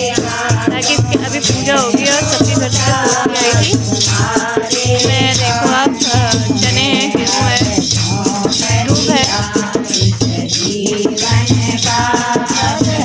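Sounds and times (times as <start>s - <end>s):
person singing wavering melody: 0.0s - 9.8s
shaker rhythm: 0.0s - 13.0s.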